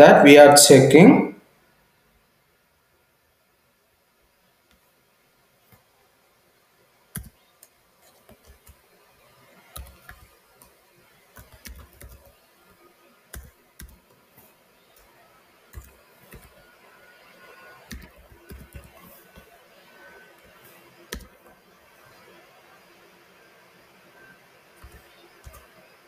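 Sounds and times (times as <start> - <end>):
keyboard typing clicks: 7.1 - 7.7, 9.7 - 10.7, 11.3 - 12.4, 13.3 - 14.2, 15.7 - 16.6, 17.8 - 19.5, 20.4 - 21.5, 24.8 - 25.8.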